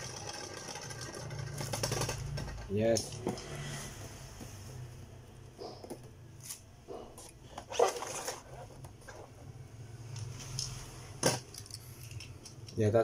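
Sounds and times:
spinning top rattling: 0.0s - 3.2s
spinning top on plastic floor: 0.0s - 3.4s.

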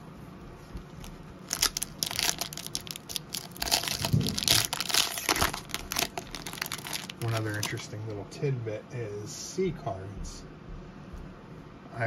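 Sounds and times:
foil wrapper crinkling: 1.0s - 7.9s.

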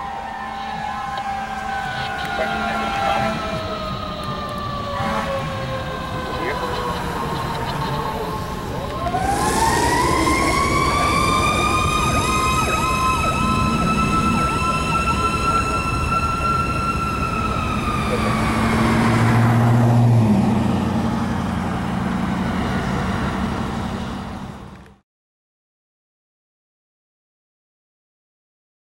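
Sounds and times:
low air horn blast: 0.0s - 8.0s
fast up-and-down siren: 0.0s - 21.8s
siren wailing: 0.0s - 23.6s.

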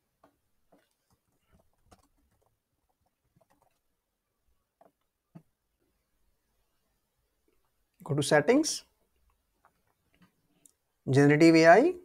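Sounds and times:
keyboard and mouse clicks: 0.2s - 3.9s.

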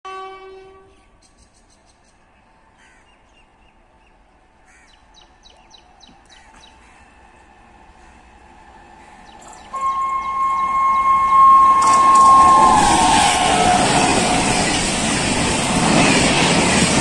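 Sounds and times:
crows cawing: 4.7s - 5.0s.

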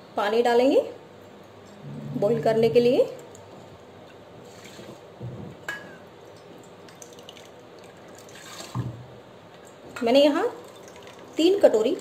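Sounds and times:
water trickling: 10.6s - 11.4s.

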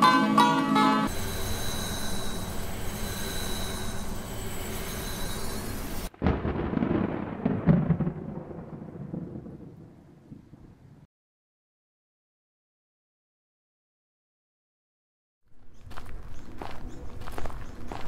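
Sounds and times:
plucked-string music: 0.0s - 1.1s
dark hissing ambient drone: 1.1s - 6.1s
deep thunder-like rumble: 6.1s - 11.1s.

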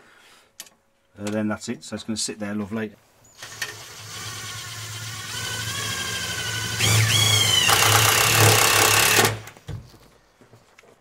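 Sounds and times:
cordless drill motor whining: 3.4s - 9.4s.

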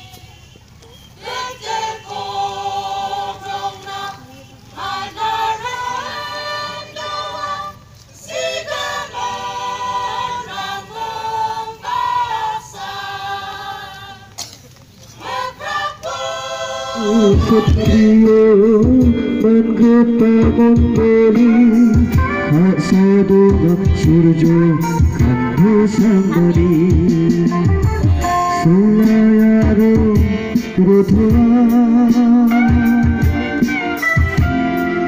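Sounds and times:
choir singing unaccompanied: 0.0s - 14.4s, 15.0s - 35.0s
loud low steady sound: 16.9s - 35.0s.

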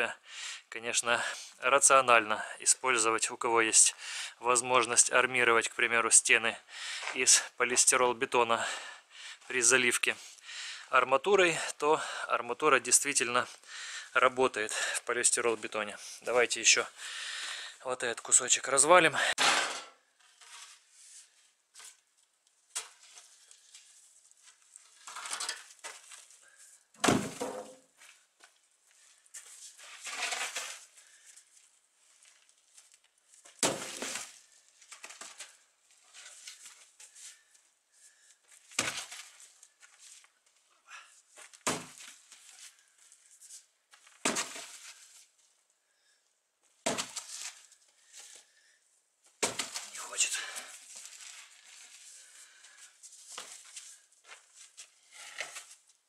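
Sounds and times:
concrete block impacts crumbling: 27.0s - 28.0s, 33.4s - 35.6s, 38.6s - 39.5s, 41.4s - 42.3s, 43.9s - 45.0s, 46.7s - 47.6s, 49.3s - 50.0s
slab scraping on gritty ground: 29.7s - 31.0s, 33.6s - 34.4s.

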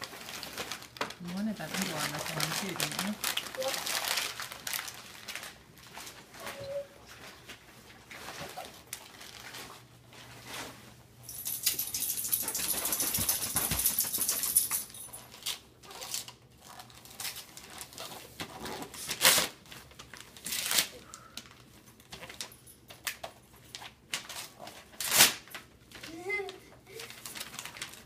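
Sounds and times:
wrapping paper tearing: 0.0s - 6.6s, 8.1s - 9.9s, 15.3s - 28.0s.

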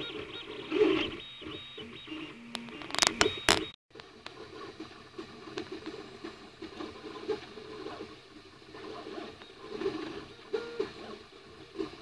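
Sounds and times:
stepper motors whining: 0.0s - 3.8s, 6.6s - 12.0s.

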